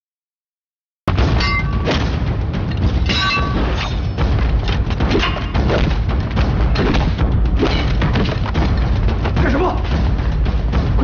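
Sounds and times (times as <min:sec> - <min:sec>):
dramatic action music: 0:01.1 - 0:11.0
thuds and knocks of fighting: 0:03.7 - 0:11.0.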